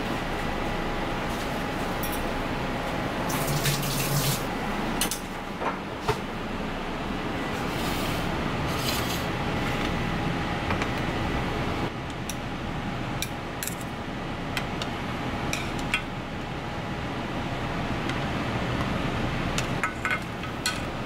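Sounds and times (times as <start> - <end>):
kitchen background noise: 3.3 - 6.3, 7.4 - 10.0, 19.6 - 21.0.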